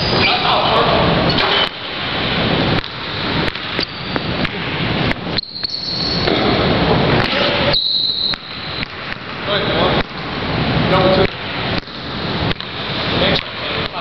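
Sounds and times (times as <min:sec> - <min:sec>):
sneakers squeaking on hardwood: 0:03.7 - 0:04.5, 0:05.3 - 0:06.6, 0:07.2 - 0:08.9.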